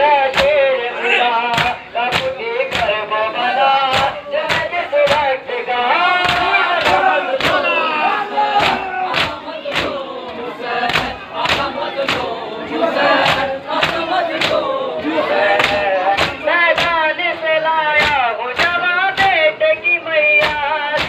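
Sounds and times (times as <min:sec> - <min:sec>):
men chanting a lament: 0:00.0 - 0:21.0.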